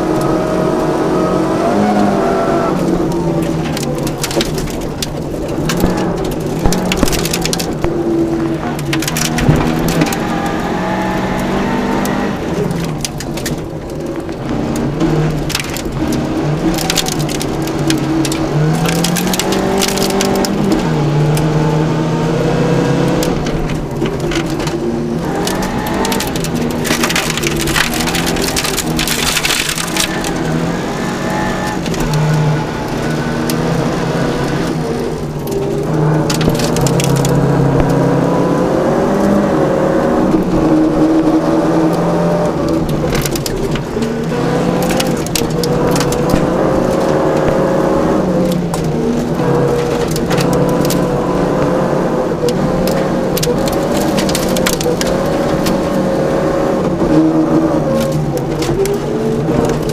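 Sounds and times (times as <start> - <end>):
rally car engine revving: 0.0 - 59.9
gravel crackling against underbody: 1.6 - 59.9.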